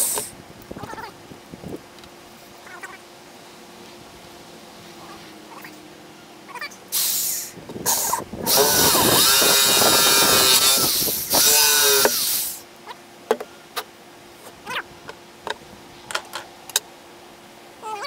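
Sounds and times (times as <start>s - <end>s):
electric drill whining: 7.9s - 12.6s.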